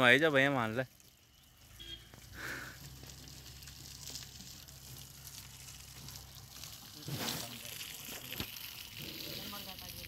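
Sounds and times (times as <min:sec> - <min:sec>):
water hissing from a hose: 0:00.0 - 0:10.0.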